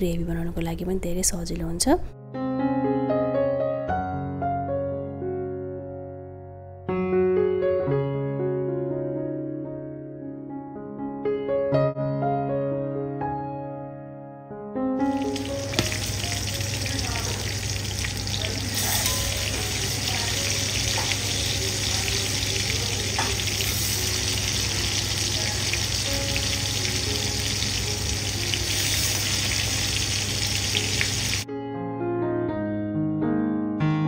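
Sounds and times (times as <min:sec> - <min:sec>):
piano music: 0:02.0 - 0:34.0
chicken sizzling in hot oil: 0:15.0 - 0:31.5.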